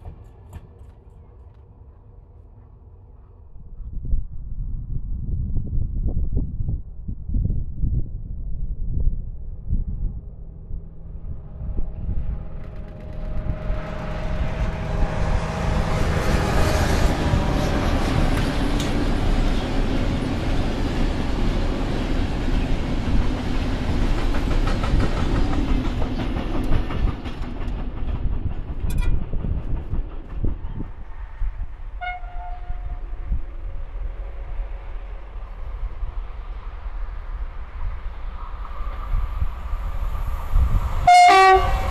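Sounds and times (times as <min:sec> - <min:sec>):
diesel locomotive engine: 0:00.0 - 0:06.5, 0:07.2 - 0:41.9
train rumbling past: 0:00.0 - 0:41.9.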